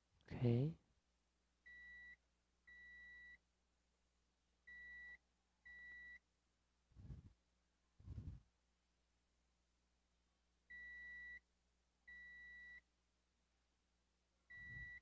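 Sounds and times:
multimeter continuity beeps: 1.7 - 3.4, 4.7 - 6.2, 10.7 - 11.4, 12.1 - 12.8, 14.5 - 15.0.

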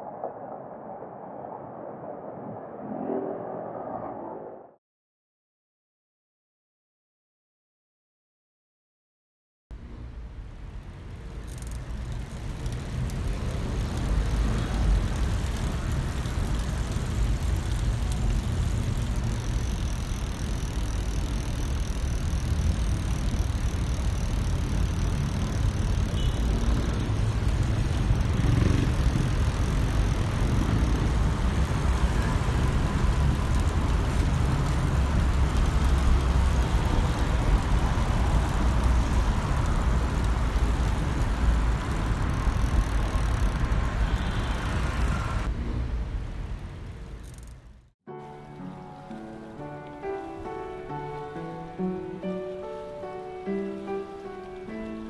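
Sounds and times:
tyre and street noise: 9.8 - 47.9.

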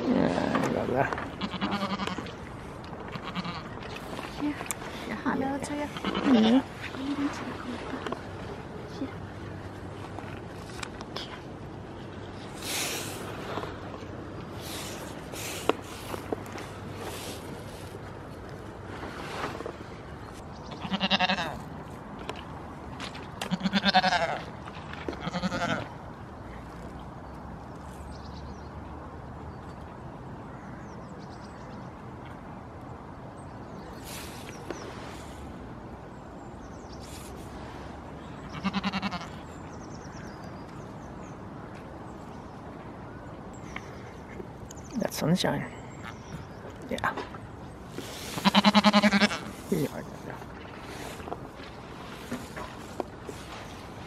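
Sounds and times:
goats bleating: 1.4 - 2.3, 3.2 - 3.7, 6.0 - 6.6, 20.8 - 21.6, 23.5 - 24.4, 25.2 - 25.9, 38.5 - 39.4, 48.4 - 49.6.

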